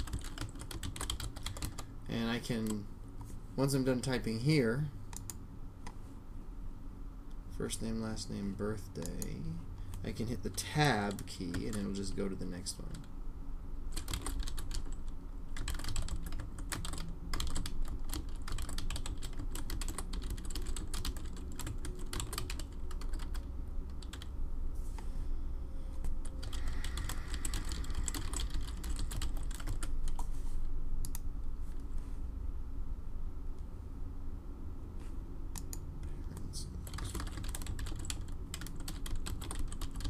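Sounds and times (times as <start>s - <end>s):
typing on a keyboard: 0.0s - 1.8s, 13.9s - 24.3s, 26.2s - 30.3s, 36.8s - 40.0s.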